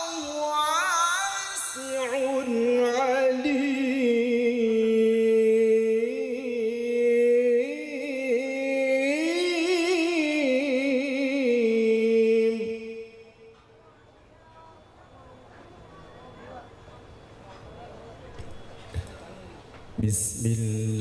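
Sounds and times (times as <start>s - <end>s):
man chanting solo: 20.0s - 21.0s.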